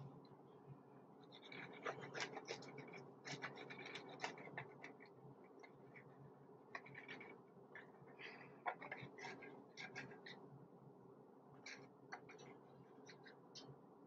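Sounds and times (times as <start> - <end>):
utensil scraping a dish: 1.3 - 5.1, 6.8 - 10.4.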